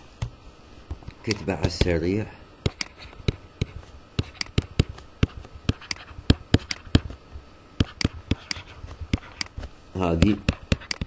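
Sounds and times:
stylus tapping on screen: 1.3s - 2.0s, 2.6s - 7.2s, 7.8s - 9.6s, 10.2s - 11.0s.

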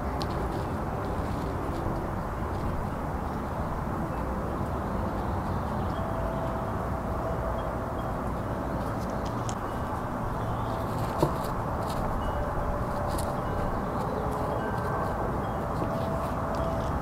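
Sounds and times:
gravel clicking and scraping: 0.0s - 3.0s, 8.8s - 17.0s.

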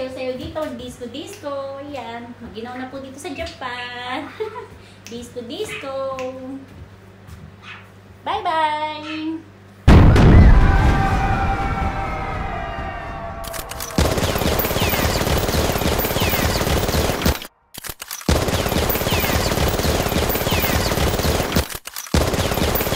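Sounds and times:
gunshot ringing tail: 9.9s - 17.5s
rapid automatic gunfire: 13.5s - 22.9s.

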